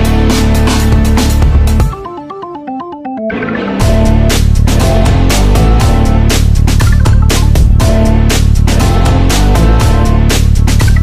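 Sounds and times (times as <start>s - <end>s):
music with heavy bass: 0.0s - 2.4s, 3.3s - 11.0s
drum beat: 3.8s - 11.0s.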